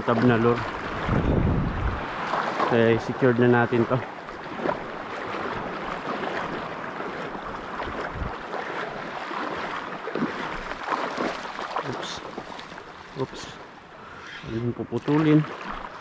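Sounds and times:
wind buffeting microphone: 0.0s - 11.4s
seawater sloshing and lapping: 0.0s - 16.0s.

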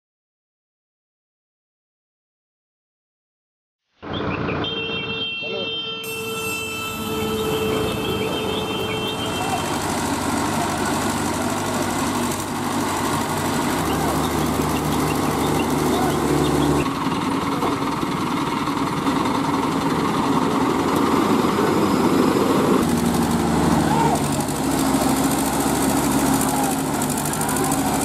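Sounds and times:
diesel engine running: 6.1s - 28.0s.

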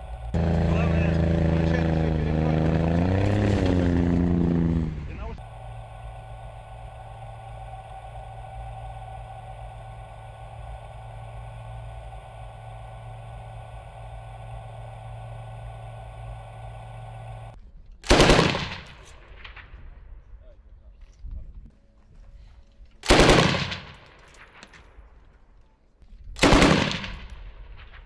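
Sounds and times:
mechanical hum: 0.0s - 17.6s
machine-gun burst: 18.1s - 19.0s, 23.0s - 24.0s, 26.4s - 27.3s.

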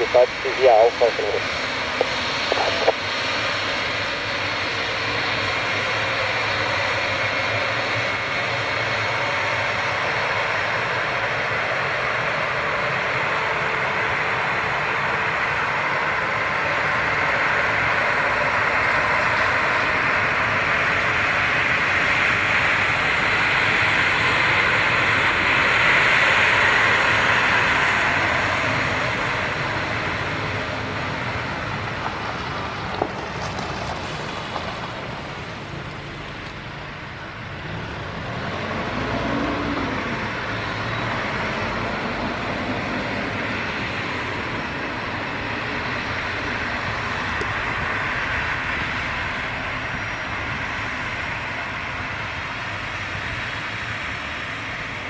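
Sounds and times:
jet engines whooshing: 0.0s - 10.6s.

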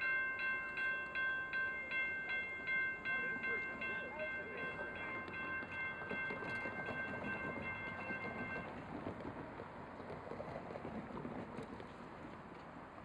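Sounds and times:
railroad crossing bell ringing: 0.0s - 8.9s.

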